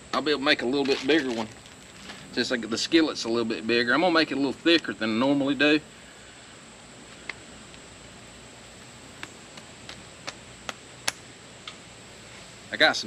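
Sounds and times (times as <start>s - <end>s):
fire hissing: 0.0s - 13.0s
wood crackling and popping: 0.6s - 2.4s.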